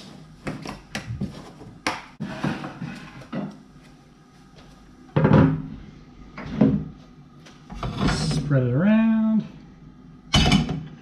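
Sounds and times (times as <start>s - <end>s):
kitchen items knocking: 10.4s - 10.9s.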